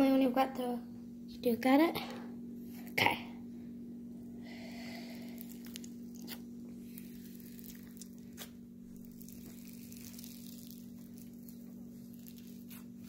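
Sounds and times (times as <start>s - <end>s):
steady low hum: 0.0s - 13.0s
foam slime crackling: 4.5s - 13.0s.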